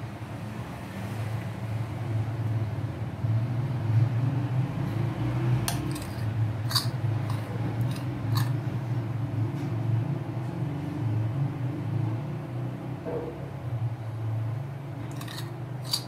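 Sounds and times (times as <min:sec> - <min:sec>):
metal spoon scraping ceramic bowl: 0:05.7 - 0:08.6, 0:15.1 - 0:16.0.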